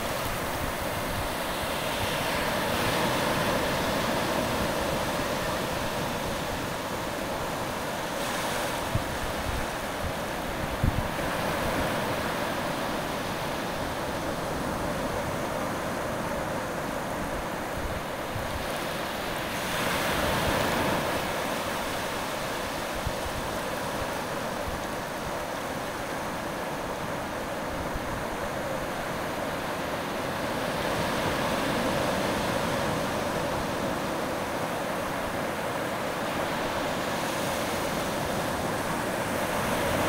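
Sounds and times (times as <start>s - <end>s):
surf washing over sand: 0.0s - 40.0s.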